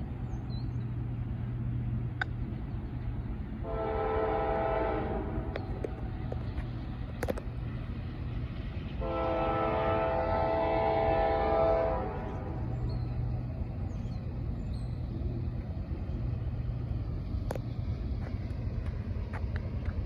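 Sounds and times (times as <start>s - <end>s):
low steady rumble: 0.0s - 20.0s
train air horn blasts: 3.6s - 5.6s, 9.0s - 12.6s.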